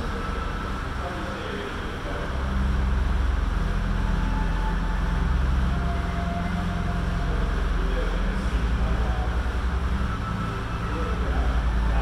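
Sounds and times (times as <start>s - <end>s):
air bike fan whooshing: 0.0s - 12.0s.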